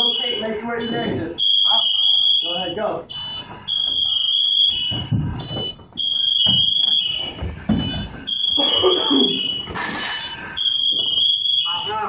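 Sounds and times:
high electronic alarm tone: 0.0s - 12.0s
rising beeps: 0.0s - 12.0s.

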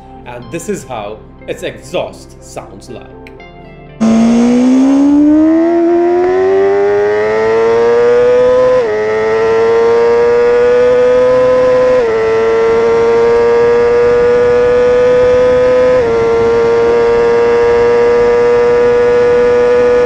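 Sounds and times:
motorcycle engine at full throttle: 4.0s - 20.0s.

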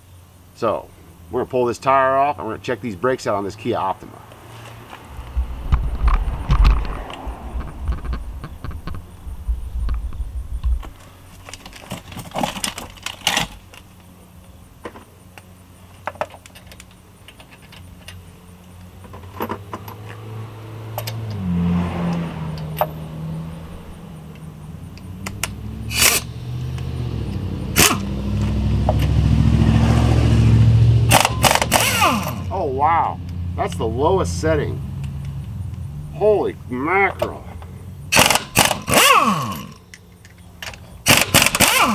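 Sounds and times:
pneumatic impact wrench running: 25.4s - 26.3s, 27.7s - 28.1s, 31.0s - 32.5s, 38.1s - 39.8s, 41.0s - 41.9s.

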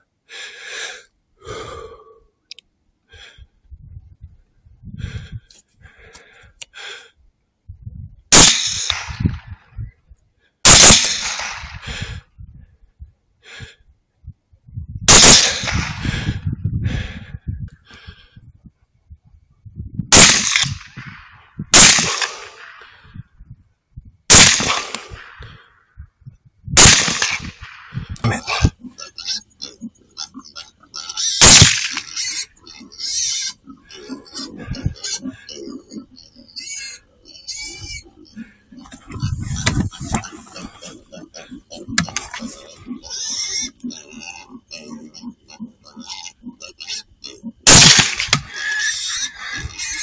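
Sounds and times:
rifle shots with echo: 8.3s - 9.6s, 10.6s - 11.8s, 15.1s - 16.0s, 20.1s - 22.8s, 24.3s - 25.4s, 26.8s - 27.9s, 31.4s - 32.1s, 47.7s - 48.6s.

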